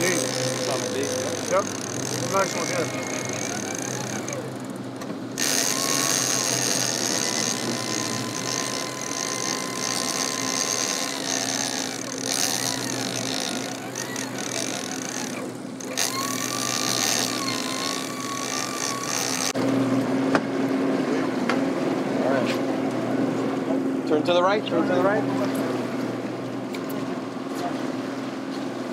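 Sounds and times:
fishing reel drag whining: 0.0s - 4.8s, 5.4s - 19.6s
boat engines humming: 0.0s - 28.9s.

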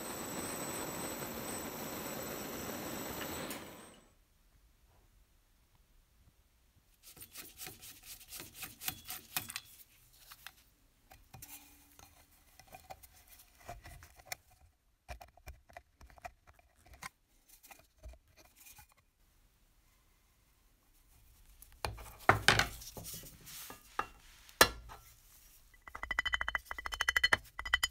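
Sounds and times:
hand tool scraping metal tube: 7.0s - 10.4s, 21.9s - 27.9s.

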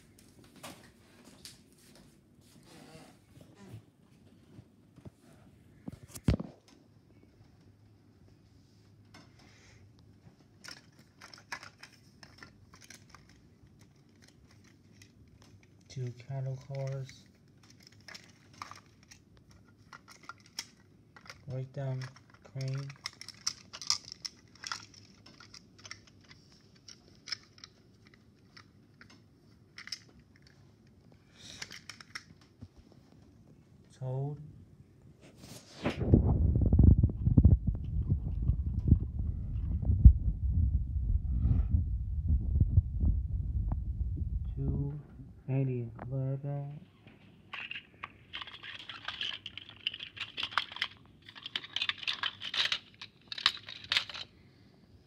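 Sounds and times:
plastic toy train cars clicking: 10.6s - 30.6s, 31.4s - 32.4s, 47.5s - 54.3s.

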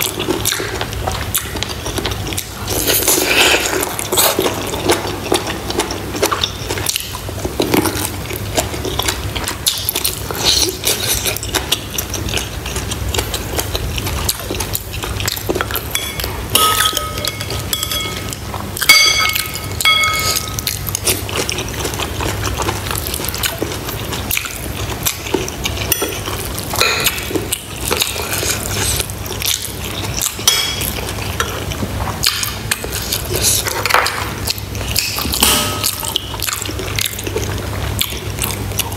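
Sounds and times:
wet chewing and slurping: 0.0s - 38.9s
metal spoon clinking ceramic bowl: 15.9s - 20.6s, 35.4s - 36.2s.

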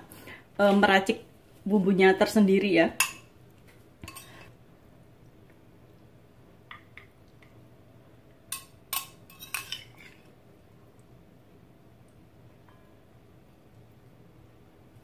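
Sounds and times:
cutlery clinking on ceramic bowl: 4.0s - 4.5s, 8.5s - 10.3s.

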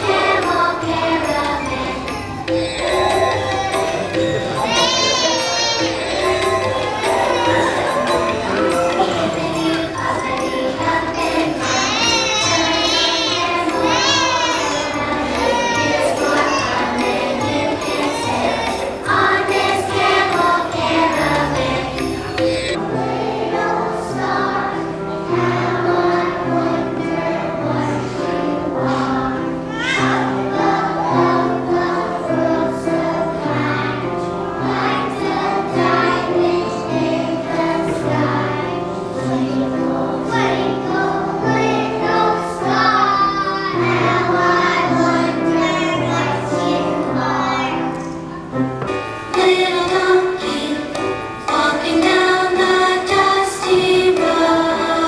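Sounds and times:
children singing: 0.0s - 55.0s
instrumental accompaniment with bass: 0.1s - 12.8s.

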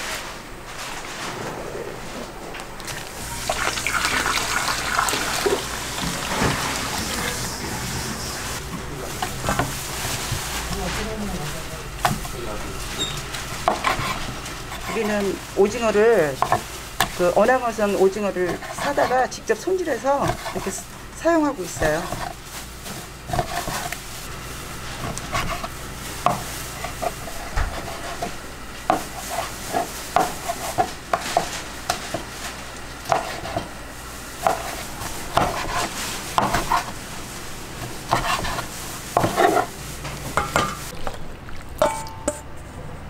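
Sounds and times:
oil sizzling: 2.8s - 10.8s
food stirred in a bowl: 2.9s - 42.4s.

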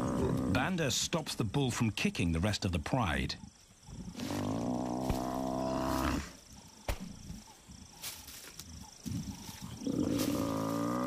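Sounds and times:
scuffling: 4.2s - 6.2s, 6.8s - 11.0s.

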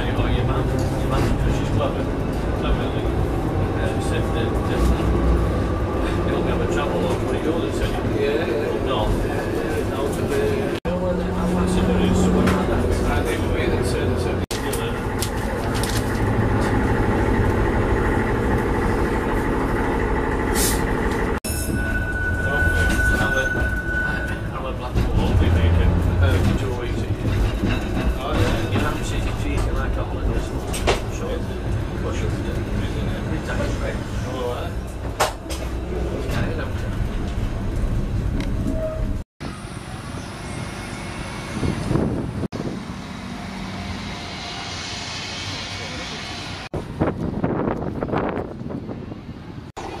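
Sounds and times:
tram wheels and motors rumbling: 0.0s - 50.0s
vehicle and street noise: 0.0s - 50.0s
wind on microphone: 41.5s - 43.1s, 46.7s - 49.7s.

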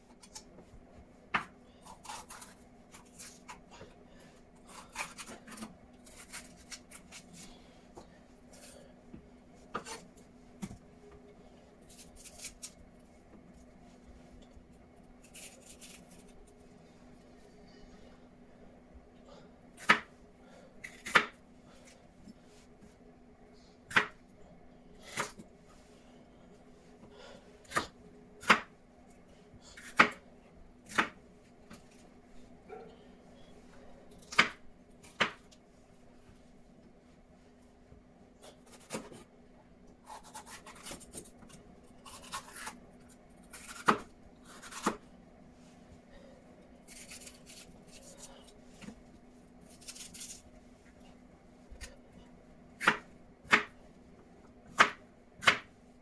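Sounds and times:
knife chopping on wooden board: 54.7s - 55.7s.

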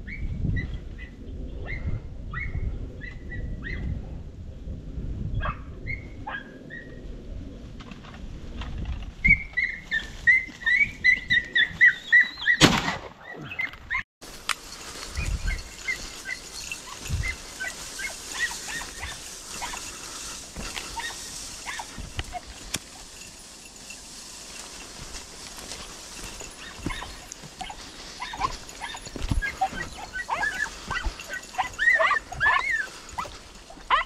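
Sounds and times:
hounds yelping: 9.2s - 12.6s, 14.8s - 23.9s, 24.5s - 34.0s
loud shotgun shot: 12.6s - 13.2s.

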